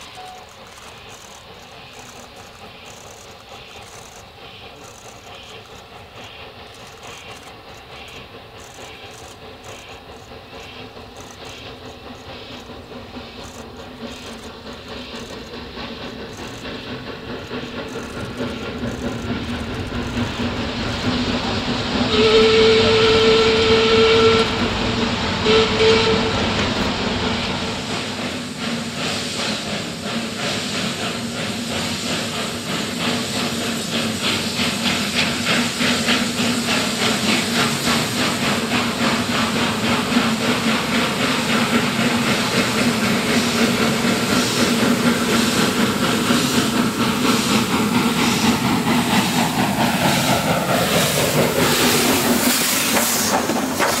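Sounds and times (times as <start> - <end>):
steam hissing from cylinders: 0.0 - 54.0
steam locomotive exhaust beat: 0.0 - 54.0
steam locomotive whistle blasts: 22.1 - 26.8.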